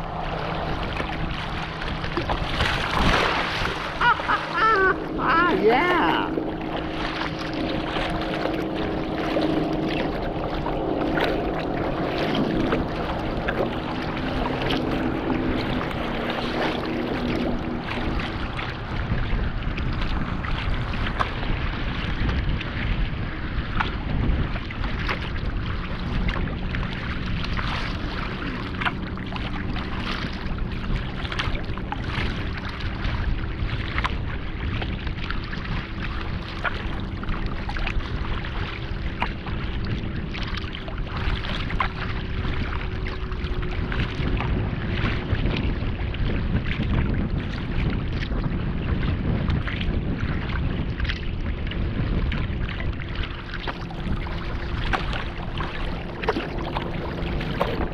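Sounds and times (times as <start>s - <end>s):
water sloshing against kayak: 0.0s - 57.9s
wave chop slapping the bow: 0.0s - 57.9s
wind on the microphone: 0.0s - 57.9s.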